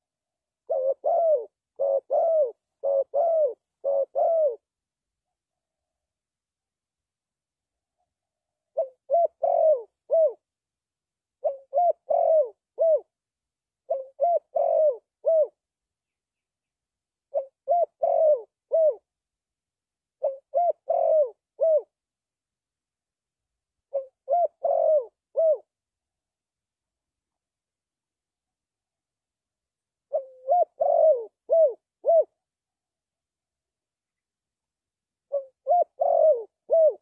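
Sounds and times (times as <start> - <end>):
dove cooing: 0.6 - 4.7, 8.7 - 10.4, 11.4 - 13.1, 13.8 - 15.6, 17.3 - 19.1, 20.2 - 22.0, 23.9 - 25.7, 30.1 - 32.4, 35.3 - 37.0.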